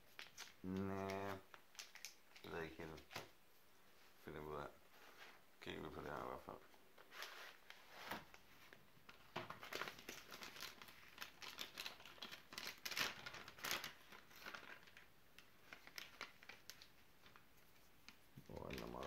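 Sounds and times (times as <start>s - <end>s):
food pouch crinkling and tearing: 9.5s - 16.9s.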